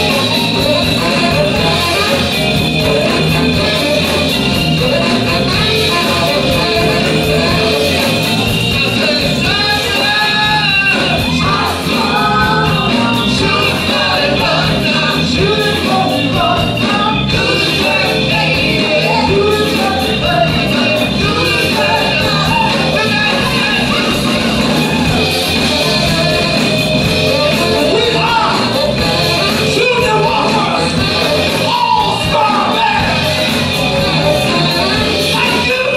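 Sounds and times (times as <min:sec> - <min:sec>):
live soul band playing: 0:00.0 - 0:35.9
saxophone: 0:00.0 - 0:35.9
sung and shouted vocals: 0:00.0 - 0:35.9.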